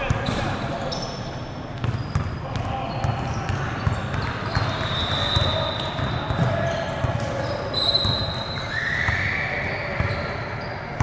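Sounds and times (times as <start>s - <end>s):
ball bouncing on hard court: 1.8s - 9.3s.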